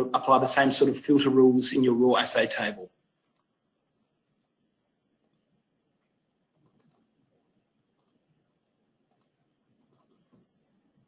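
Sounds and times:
computer mouse clicks: 3.2 - 3.5, 5.2 - 7.2, 7.9 - 8.4, 9.0 - 10.6.

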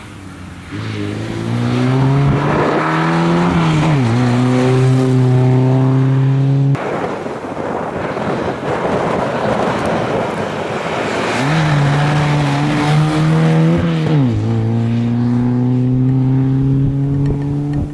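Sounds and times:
rally car engine at high revs: 0.6 - 6.8, 10.7 - 17.9.

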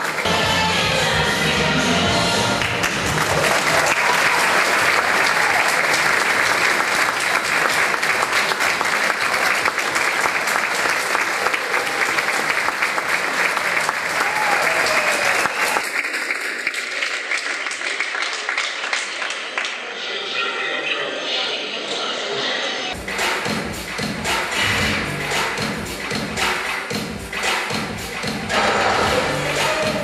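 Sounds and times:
audience applauding: 0.0 - 0.3, 2.6 - 20.0.

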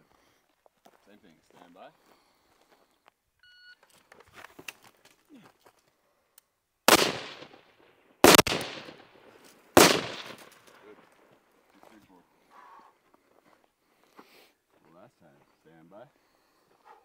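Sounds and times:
rifle shots echoing: 6.9 - 11.4.

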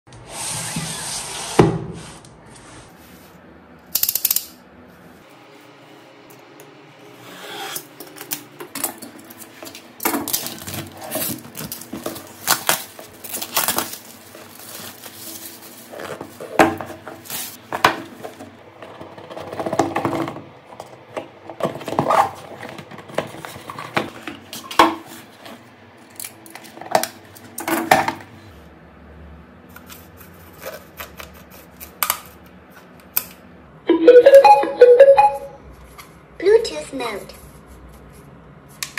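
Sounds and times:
packaging rustling: 8.2 - 20.4
knife cutting packaging: 9.3 - 17.6.

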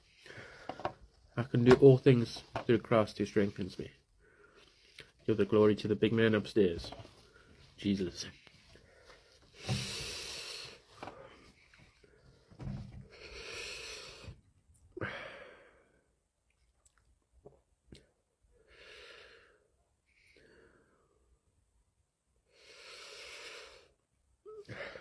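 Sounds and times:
man breathing heavily: 0.0 - 1.0, 8.7 - 14.4, 15.0 - 16.1, 22.5 - 24.0.

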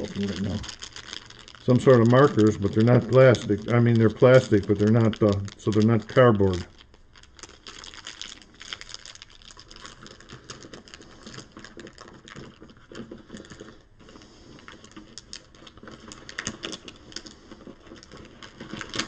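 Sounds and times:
plastic game pieces rattling: 0.0 - 13.8, 14.5 - 19.0
plastic bag crinkling: 0.0 - 19.0.

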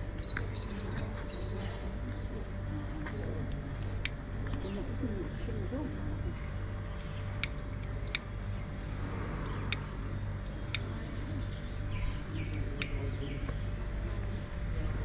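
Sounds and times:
low rumble: 0.0 - 15.0.

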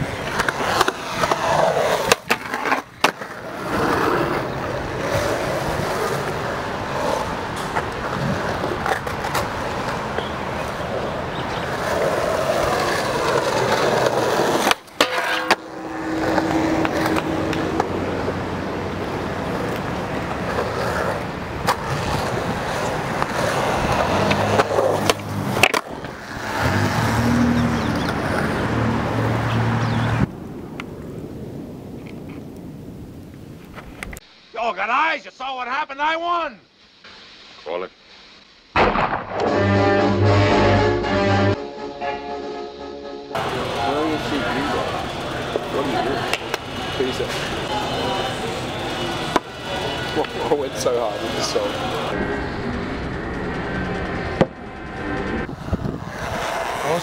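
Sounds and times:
skateboard grinding on rail: 0.0 - 29.4, 53.7 - 57.0
skateboard wheels rolling on concrete: 0.0 - 39.6, 43.3 - 57.0
skateboard pops and landing clacks: 2.0 - 3.4, 24.2 - 26.1.

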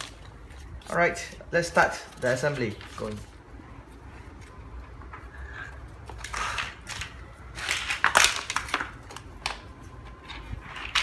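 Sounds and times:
plastic pieces crackling and rustling: 0.0 - 1.0, 6.1 - 11.0.

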